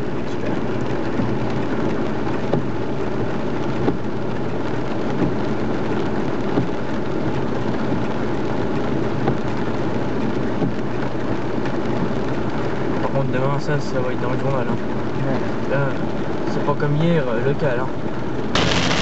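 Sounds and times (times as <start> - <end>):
heavy rain on car: 0.0 - 19.0
road and engine noise inside car: 0.0 - 19.0.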